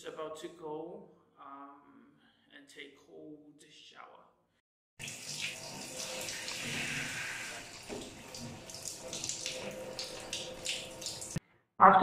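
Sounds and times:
shower water spraying: 5.0 - 11.4.

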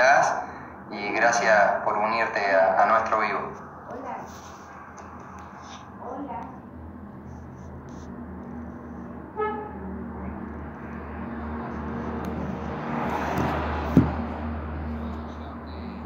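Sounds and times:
vehicle passing by: 0.0 - 16.0
brief thump: 13.3 - 14.2.

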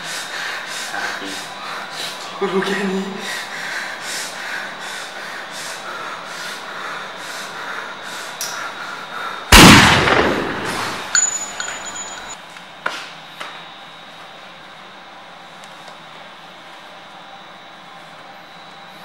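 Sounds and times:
pistol gunshot: 9.5 - 11.1
high steady ringing tone: 10.9 - 12.4.

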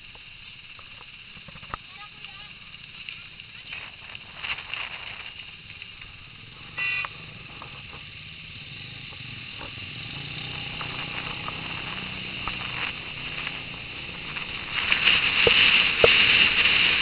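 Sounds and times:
motorcycle engine running: 5.4 - 17.0.

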